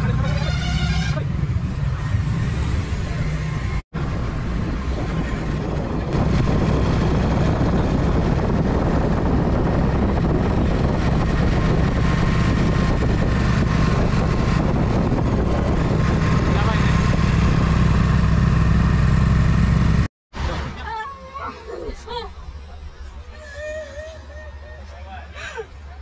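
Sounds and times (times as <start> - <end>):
vehicle engine rumble: 0.0 - 26.0
wind and road noise: 0.0 - 26.0.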